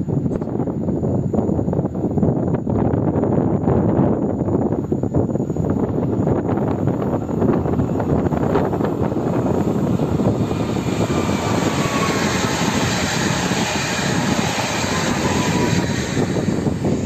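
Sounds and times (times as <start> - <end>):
faint high whine: 0.0 - 17.0
electric train passing by: 6.6 - 17.0.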